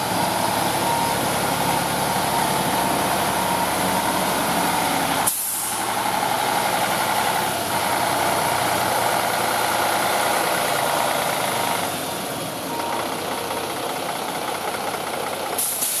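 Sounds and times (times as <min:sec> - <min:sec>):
truck diesel engine idling: 0:00.0 - 0:16.0.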